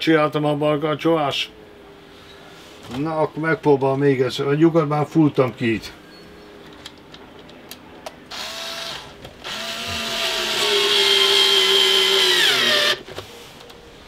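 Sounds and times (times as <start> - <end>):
cordless drill motor whine: 8.3 - 13.0.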